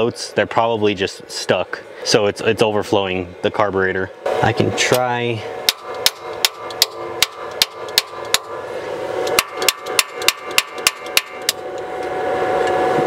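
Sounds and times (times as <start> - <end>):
tool tapping on carburetor: 4.9 - 8.5, 9.2 - 12.1.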